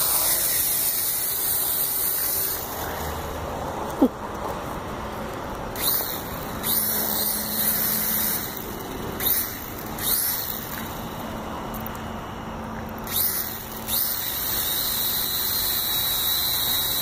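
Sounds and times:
quadcopter motors whining: 0:00.0 - 0:04.1, 0:05.6 - 0:17.0.

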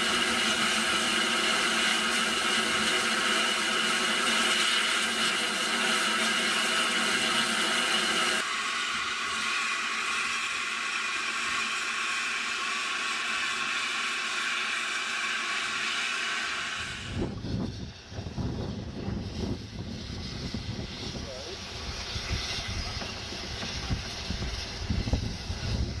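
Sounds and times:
steam locomotive hissing: 0:00.0 - 0:26.0
low rumble: 0:16.9 - 0:26.0.

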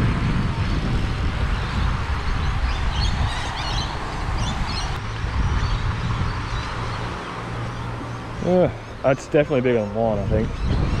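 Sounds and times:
birds chirping: 0:00.0 - 0:11.0
wind buffeting microphone: 0:00.0 - 0:11.0.

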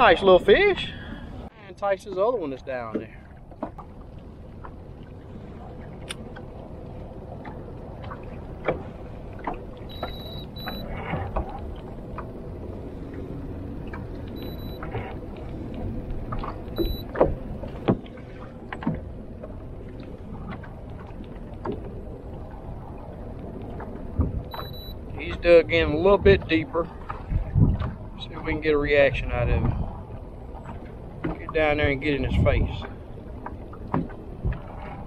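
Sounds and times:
wind and water rumble: 0:00.0 - 0:35.0
short high electronic beeps: 0:09.9 - 0:10.8, 0:14.4 - 0:14.8, 0:16.8 - 0:17.0, 0:24.5 - 0:25.0.

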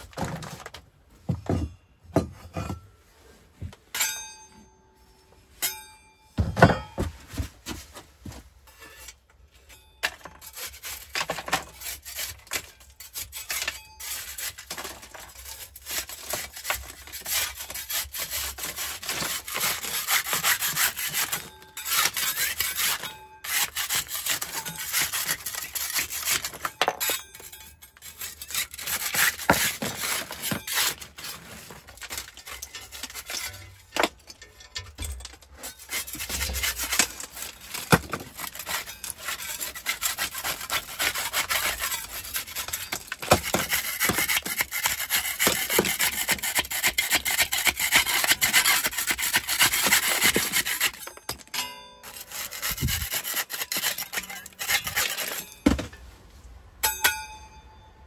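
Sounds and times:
metal scraper rasping on plaster: 0:10.1 - 0:55.7.

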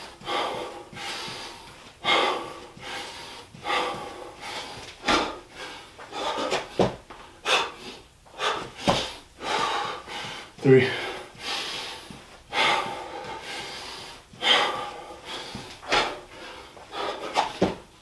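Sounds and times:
man breathing hard: 0:00.0 - 0:18.0
body thudding on floor: 0:05.0 - 0:05.4, 0:06.4 - 0:07.2, 0:08.8 - 0:09.2, 0:17.4 - 0:17.9.

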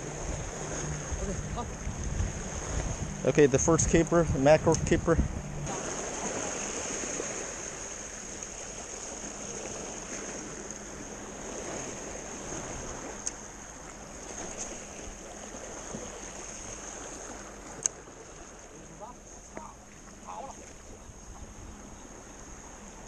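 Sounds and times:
waves splashing against rocks: 0:00.0 - 0:23.0
faint clicks: 0:13.2 - 0:13.4.

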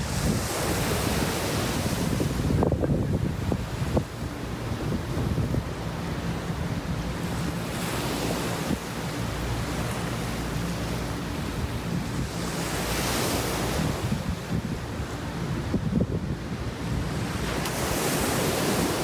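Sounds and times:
ocean surf breaking: 0:00.0 - 0:19.0
wind rumble on microphone: 0:00.0 - 0:19.0.

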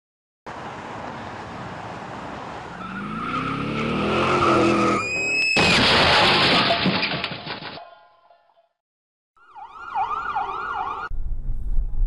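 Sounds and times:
road noise in truck cab: 0:00.5 - 0:05.6
tyre squeal: 0:02.8 - 0:05.7
crash of crumpling metal: 0:05.4 - 0:07.9.

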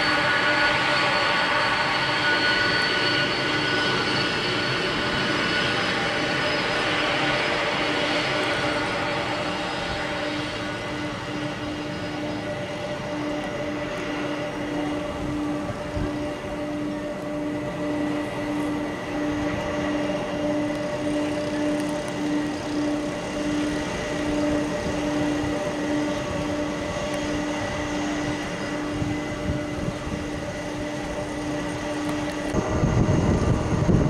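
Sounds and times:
jet engines whining: 0:00.0 - 0:34.0
pulsing low tone: 0:32.2 - 0:34.0.

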